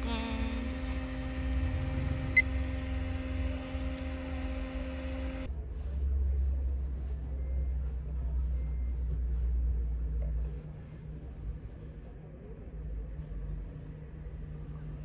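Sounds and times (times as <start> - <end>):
low rumble: 0.0 - 4.4
electric fans humming: 0.0 - 5.6.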